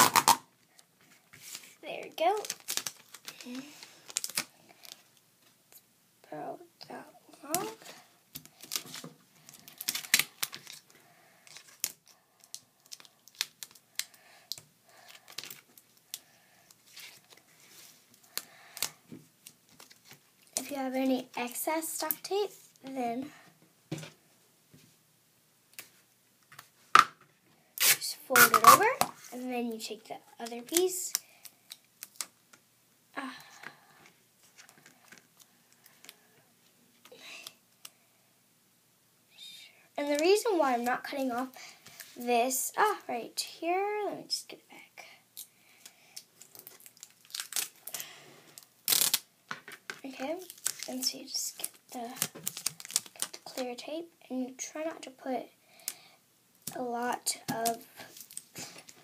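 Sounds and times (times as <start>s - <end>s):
adhesive tape crackling and tearing: 0.0s - 0.4s, 2.4s - 5.0s, 7.5s - 10.9s, 11.5s - 16.2s, 27.8s - 29.0s, 46.4s - 48.0s, 48.6s - 49.3s, 50.4s - 53.6s.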